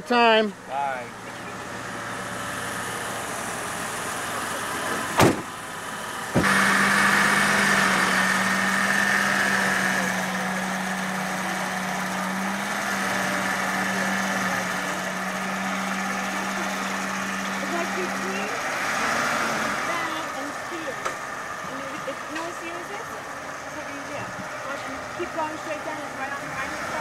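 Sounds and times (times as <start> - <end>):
car engine idling: 0.0 - 27.0
car door slamming: 4.9 - 5.5, 6.3 - 6.6.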